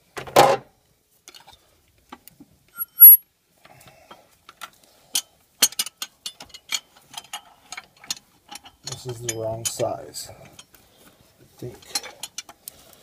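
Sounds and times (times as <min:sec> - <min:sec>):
short sharp metal ring: 0:02.8 - 0:03.2
wrenches clinking on metal: 0:02.8 - 0:03.2, 0:05.6 - 0:09.9.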